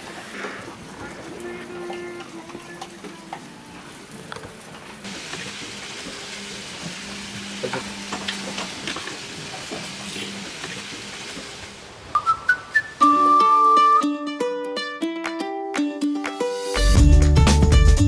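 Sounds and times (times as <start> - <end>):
food sizzling in a pan: 5.0 - 12.1.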